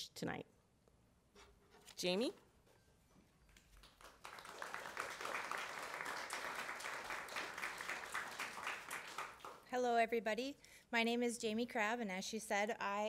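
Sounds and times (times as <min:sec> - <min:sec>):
audience applauding: 0:03.7 - 0:09.7.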